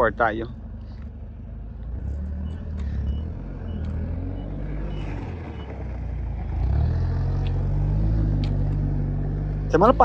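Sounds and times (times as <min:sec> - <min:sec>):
heavy vehicle engine running: 0:00.0 - 0:10.0
faint backup alarm beeps: 0:02.4 - 0:05.8.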